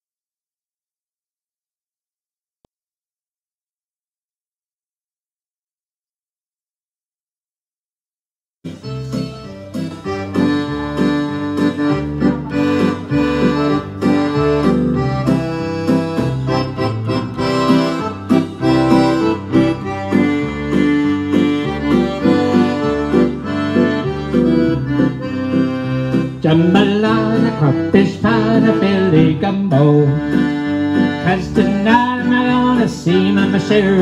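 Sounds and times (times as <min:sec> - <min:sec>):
accordion country tune: 0:08.6 - 0:34.0.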